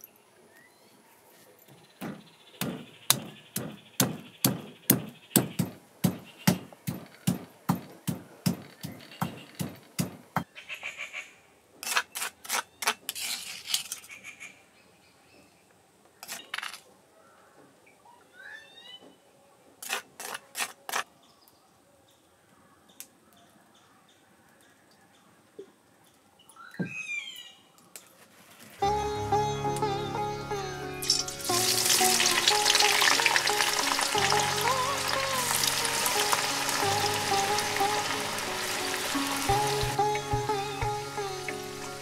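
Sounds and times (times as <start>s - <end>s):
stone pestle pounding in mortar: 2.0s - 10.5s.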